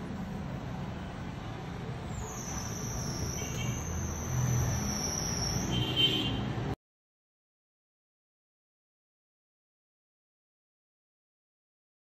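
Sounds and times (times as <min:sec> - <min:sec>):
high whistling tone: 0:02.1 - 0:06.0.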